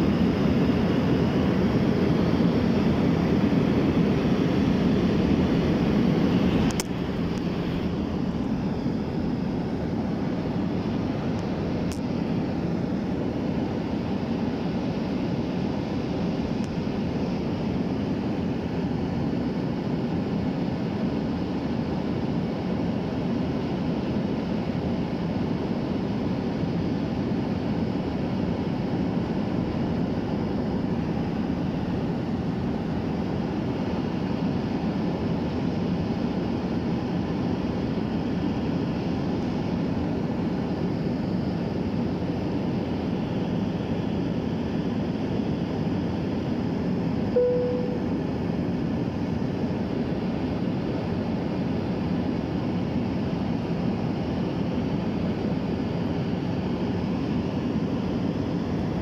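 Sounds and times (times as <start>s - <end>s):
airliner cabin noise: 46.6s - 49.6s
single tone: 47.3s - 48.3s.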